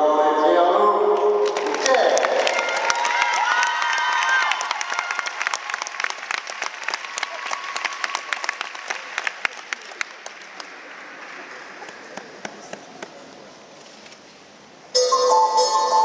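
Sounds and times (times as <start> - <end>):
audience applauding: 1.4 - 13.1.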